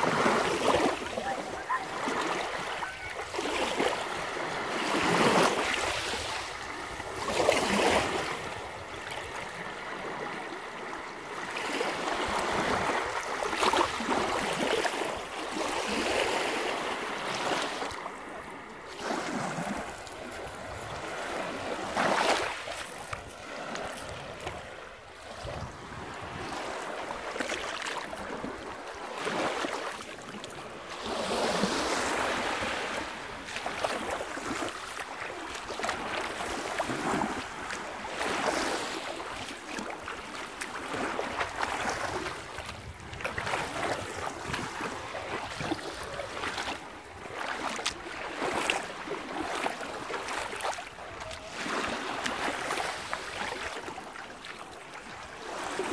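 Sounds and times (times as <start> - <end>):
waves washing over pebble beach: 0.0 - 8.9, 47.5 - 54.0.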